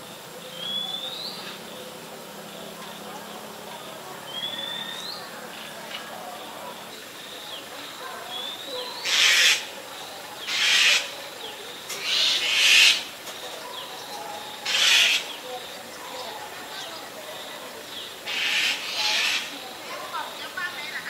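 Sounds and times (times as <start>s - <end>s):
owl hissing calls: 8.5s - 9.8s, 10.4s - 11.2s, 12.0s - 13.2s, 14.6s - 15.4s, 18.2s - 19.6s.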